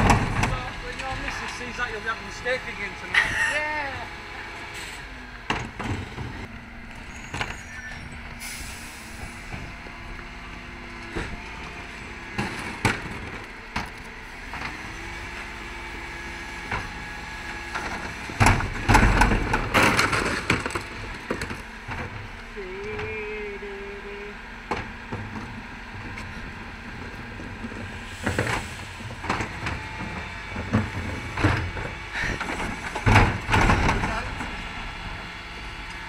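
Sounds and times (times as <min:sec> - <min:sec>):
wheelie bins knocking and clattering: 0:00.0 - 0:01.8, 0:17.8 - 0:22.3, 0:28.4 - 0:34.8
heavy bangs and clatter: 0:00.0 - 0:02.4, 0:17.8 - 0:22.2, 0:28.2 - 0:34.8
diesel engine humming: 0:00.0 - 0:36.0.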